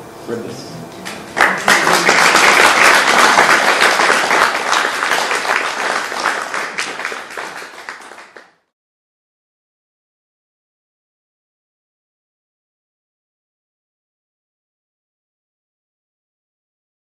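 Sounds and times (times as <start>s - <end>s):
audience applauding: 1.0s - 8.7s.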